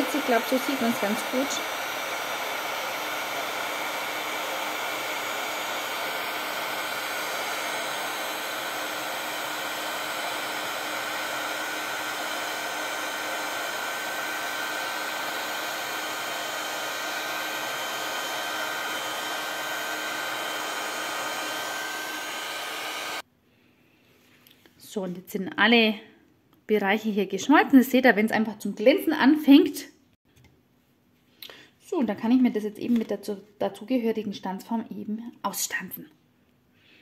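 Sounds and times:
heat tool fan hiss: 0.0 - 23.2.

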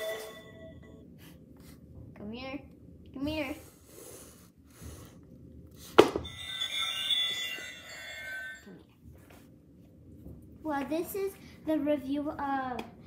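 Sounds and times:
toy playing electronic tune: 6.3 - 8.5.

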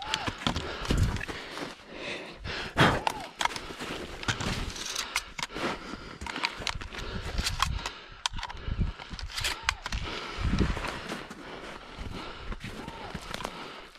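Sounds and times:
sharp clicks: 2.8 - 10.2
footsteps crunching snow: 3.5 - 4.9.

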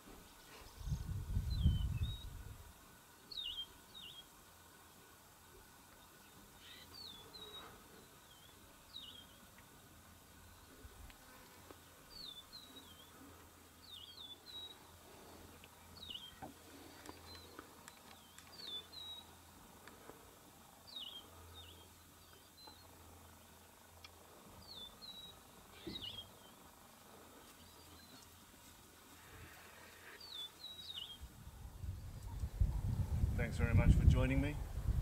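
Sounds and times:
faint bird chirps: 6.6 - 9.4, 15.9 - 19.3, 24.6 - 26.6.

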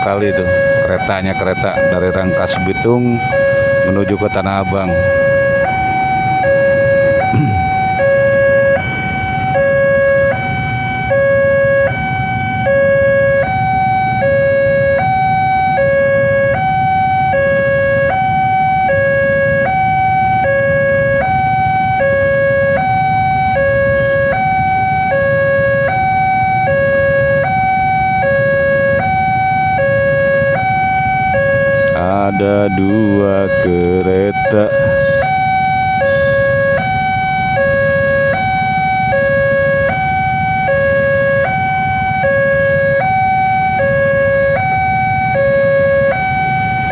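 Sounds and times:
idling traffic rumble: 0.0 - 46.9
level crossing two-tone alarm: 0.0 - 46.9.

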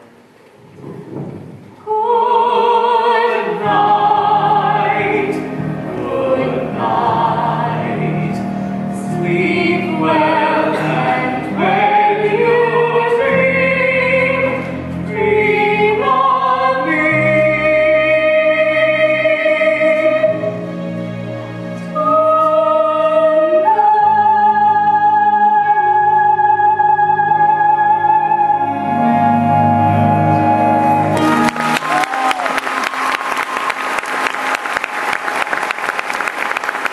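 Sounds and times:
soprano singing with vibrato: 1.8 - 20.6, 21.9 - 32.0
orchestral accompaniment: 2.6 - 34.6.

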